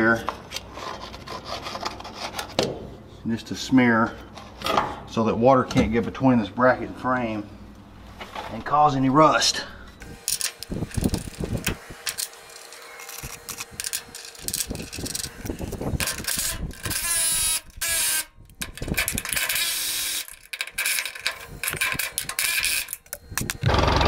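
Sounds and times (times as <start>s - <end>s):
cordless drill driving fasteners: 10.0s - 24.0s
metal parts clinking: 10.2s - 23.5s.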